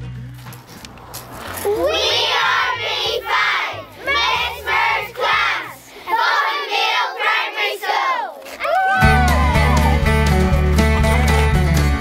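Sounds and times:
children singing together: 1.5 - 8.4
backing track: 9.0 - 12.0.

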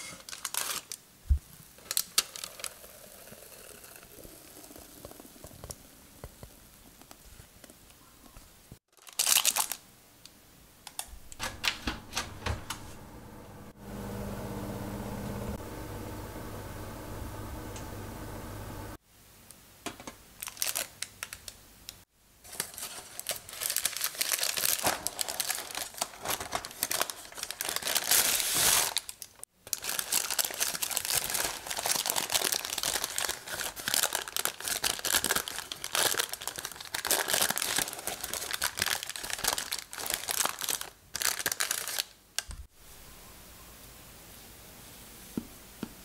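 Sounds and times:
baking paper crinkling: 0.0 - 1.0, 8.9 - 9.8, 20.4 - 21.6, 22.4 - 42.6.

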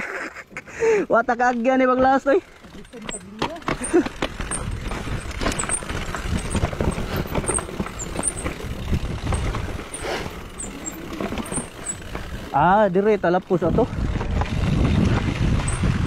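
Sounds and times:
bike rattling over rocks: 1.3 - 16.0
tyres crunching over stones: 1.6 - 12.6.

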